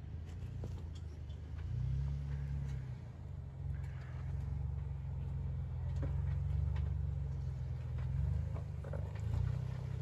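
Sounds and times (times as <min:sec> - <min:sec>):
vehicle engine low rumble: 0:00.0 - 0:10.0.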